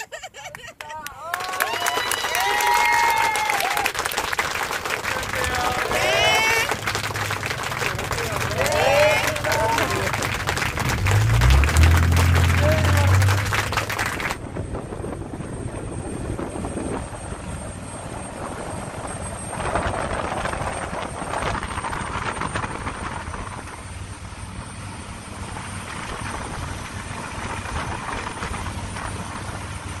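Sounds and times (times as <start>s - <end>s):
boat engine drone: 2.3s - 30.0s
rush of wake and wind: 4.9s - 30.0s.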